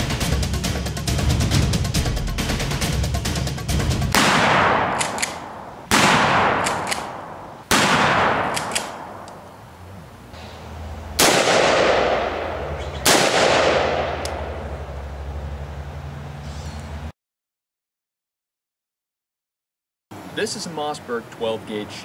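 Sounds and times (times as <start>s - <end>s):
rifle gunshots echoing: 4.1s - 9.6s, 11.1s - 15.0s.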